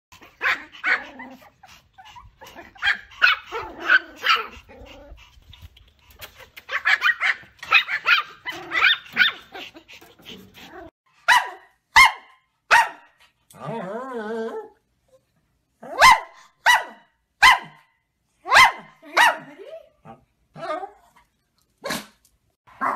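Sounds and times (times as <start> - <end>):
small dog yipping: 6.2 - 9.4.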